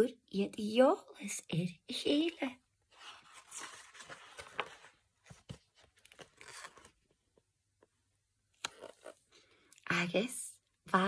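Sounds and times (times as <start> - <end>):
book page rustling: 2.9 - 7.5, 8.6 - 9.4.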